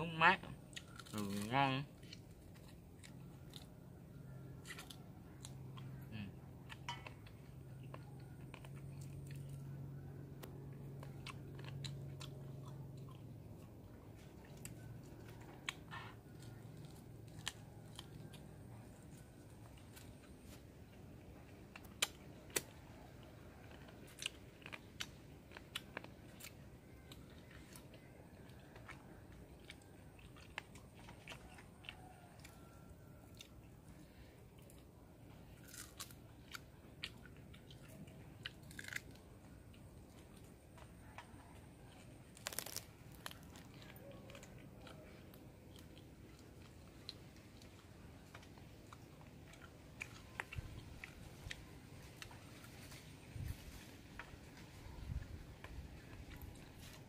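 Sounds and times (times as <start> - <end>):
chewing and crunching: 0.0 - 57.0.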